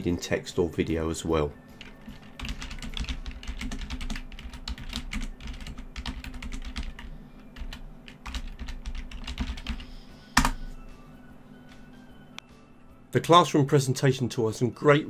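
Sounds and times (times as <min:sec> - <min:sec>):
keyboard typing: 0:01.7 - 0:10.7.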